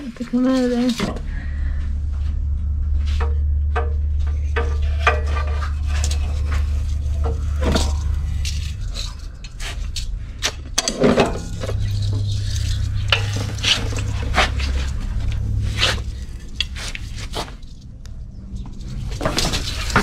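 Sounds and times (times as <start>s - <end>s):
metal tongs clinking and scraping: 10.8s - 15.0s.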